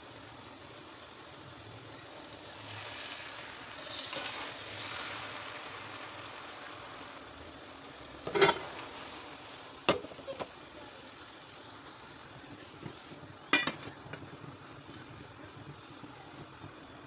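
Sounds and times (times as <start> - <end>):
rice stirred in a pot: 0.0 - 17.0
sharp knocks on a pot: 13.5 - 14.0.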